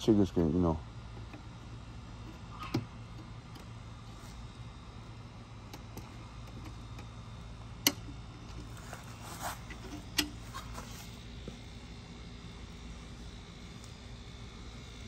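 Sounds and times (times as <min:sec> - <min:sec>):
sharp clicks and knocks: 0:07.8 - 0:08.8.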